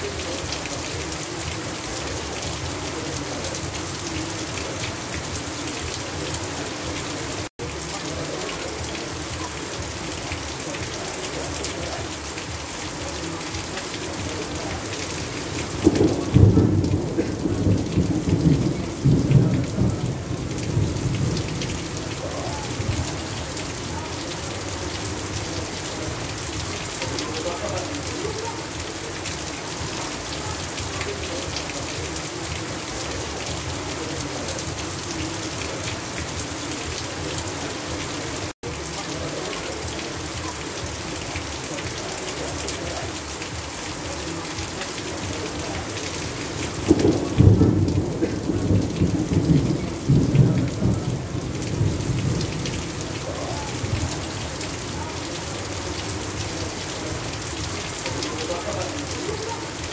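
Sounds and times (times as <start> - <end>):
heavy rain on grass: 0.0 - 59.9
water pouring off roof edge: 0.0 - 59.9
thunder rumbling: 14.2 - 27.0, 46.4 - 54.9.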